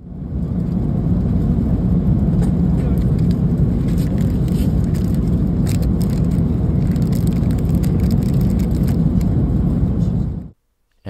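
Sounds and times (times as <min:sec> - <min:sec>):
airliner cabin rumble: 0:00.0 - 0:10.6
plastic packaging crackling: 0:03.0 - 0:09.3.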